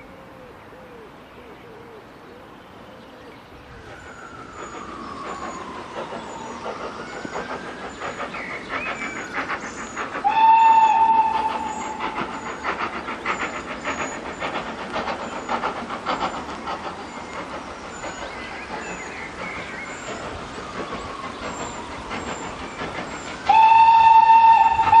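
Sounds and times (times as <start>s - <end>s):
faint birdsong: 0.0s - 25.0s
steam locomotive chuffing: 2.0s - 25.0s
steam whistle blast: 10.2s - 12.5s, 23.4s - 25.0s.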